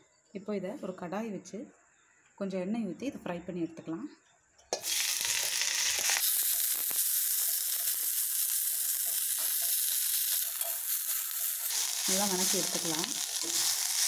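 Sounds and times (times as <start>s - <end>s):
frying hiss in hot oil: 4.7s - 14.0s.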